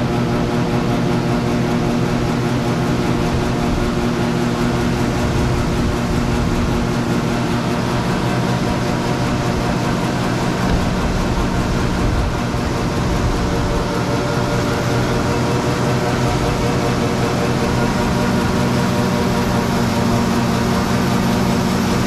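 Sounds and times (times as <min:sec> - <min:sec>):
machine hum: 0:00.0 - 0:22.0.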